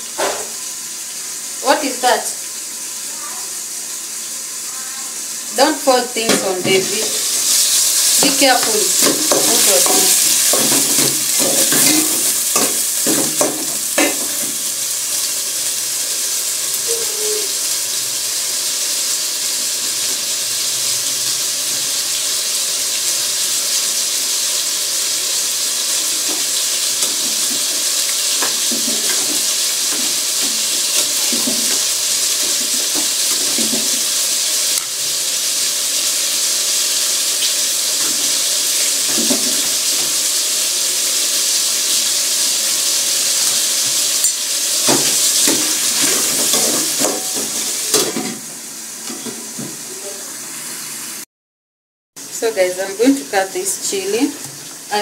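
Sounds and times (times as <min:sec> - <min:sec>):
vegetables sizzling in oil: 0:00.0 - 0:51.2, 0:52.2 - 0:55.0
metal spoon scraping a pot: 0:27.0 - 0:33.7, 0:45.4 - 0:48.4.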